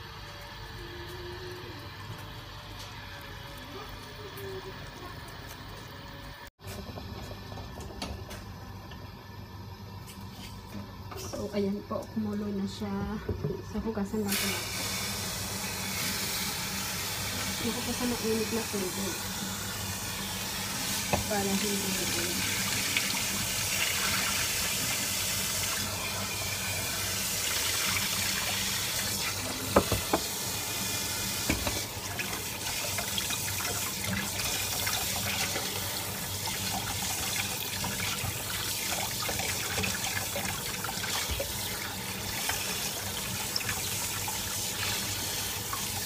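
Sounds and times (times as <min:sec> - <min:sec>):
tap running into steel pot: 0:29.7 - 0:30.3, 0:31.4 - 0:31.9.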